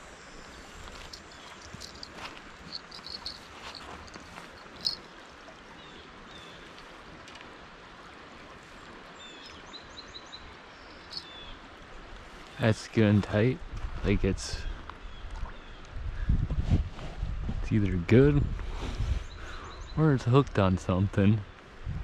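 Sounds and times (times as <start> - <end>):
flowing water: 0.0 - 16.4
small bird chirping: 0.5 - 5.1, 9.3 - 11.6.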